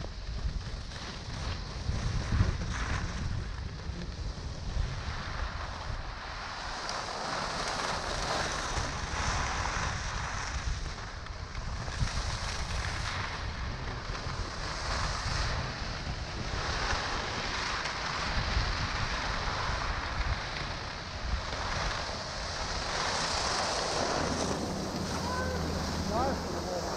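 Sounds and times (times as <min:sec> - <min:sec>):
skis scraping on snow: 0:00.0 - 0:26.9
wind buffeting microphone: 0:00.0 - 0:26.9
low rumble: 0:21.0 - 0:26.9.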